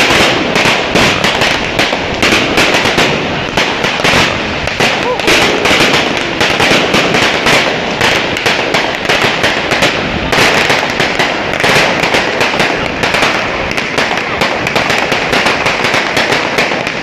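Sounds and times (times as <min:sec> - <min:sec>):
fireworks crackling and banging: 0:00.0 - 0:17.0.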